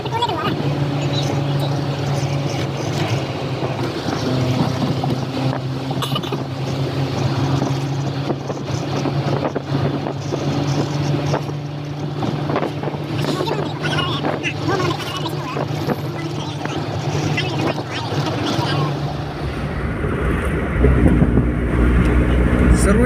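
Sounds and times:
engine hum: 0:00.0 - 0:23.0
tyre and wind noise: 0:19.0 - 0:22.8.

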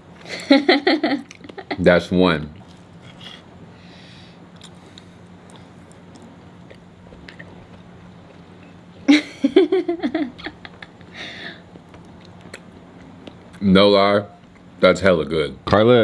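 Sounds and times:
quiet chewing: 0:02.5 - 0:03.5, 0:04.5 - 0:09.1, 0:11.7 - 0:13.6
vocal reaction and laughter: 0:09.1 - 0:11.6.

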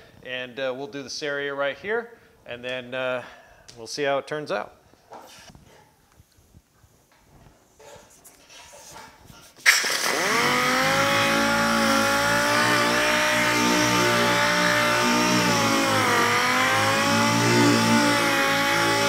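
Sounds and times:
air sander running: 0:09.7 - 0:19.0.

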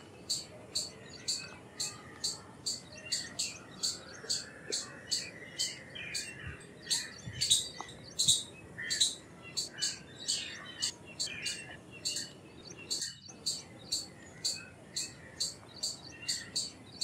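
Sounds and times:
squirrel chirping: 0:06.9 - 0:12.3, 0:12.9 - 0:17.0.

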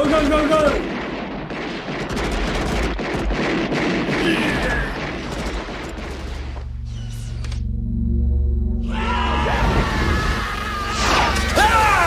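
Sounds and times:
rapid gunshots: 0:00.0 - 0:06.6
low sustained musical drone: 0:06.6 - 0:12.0.

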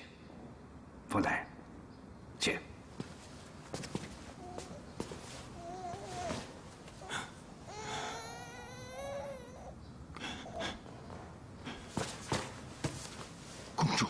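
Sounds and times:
infant crying: 0:04.3 - 0:10.8.

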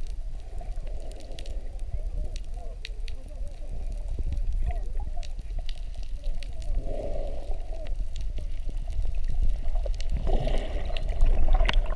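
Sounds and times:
crackling clicks: 0:00.0 - 0:11.9
muffled bubbling: 0:00.0 - 0:11.9
underwater water rumble: 0:00.0 - 0:11.9.

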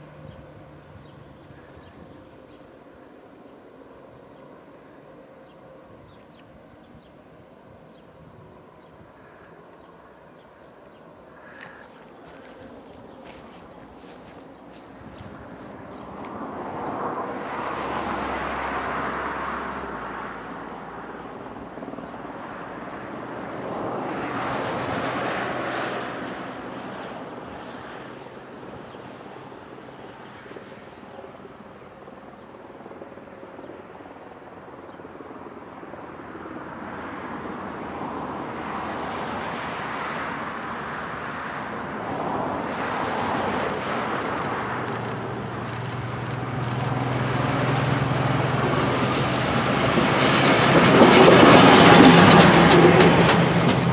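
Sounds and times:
diesel railbus humming: 0:00.0 - 0:03.0, 0:11.3 - 0:24.0, 0:40.5 - 0:53.9
outdoor rushing noise: 0:11.4 - 0:21.7, 0:41.7 - 0:53.9.

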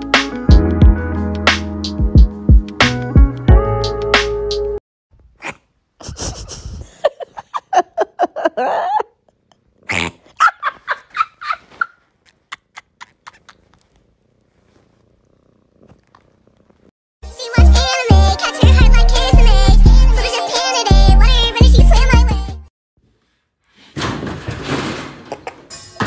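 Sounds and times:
cat making laughing calls: 0:09.9 - 0:13.9.

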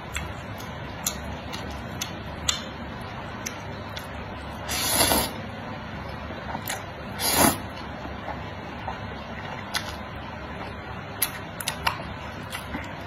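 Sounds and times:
noodles slurped: 0:07.2 - 0:07.7.

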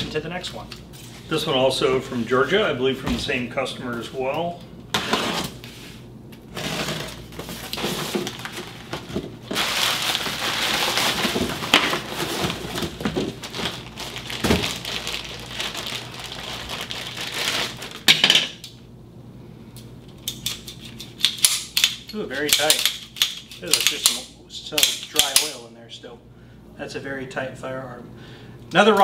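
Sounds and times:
cardboard and plastic rustling: 0:06.5 - 0:18.1
knife slitting packing tape: 0:20.2 - 0:24.2.

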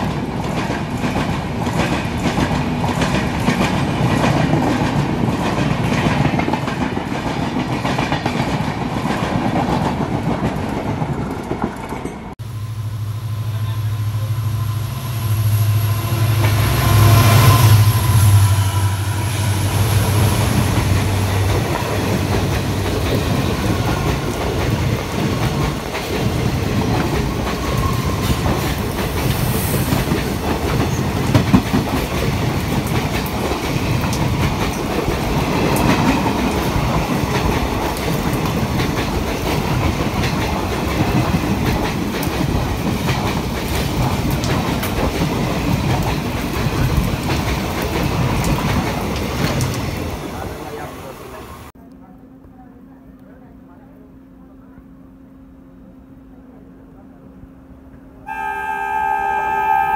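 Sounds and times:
train coaches rumbling past: 0:00.0 - 0:51.8, 0:53.7 - 0:59.9
diesel locomotive engine drone: 0:11.0 - 0:59.9
wheels clacking over rail joints: 0:20.1 - 0:50.5.

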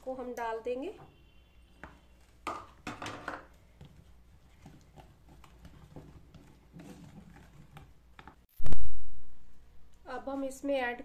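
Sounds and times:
whisk stirring batter in bowl: 0:03.5 - 0:08.4.

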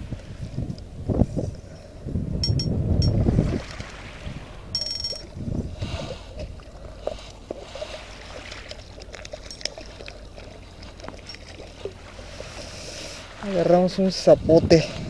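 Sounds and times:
waves lapping among rocks: 0:03.1 - 0:14.4.

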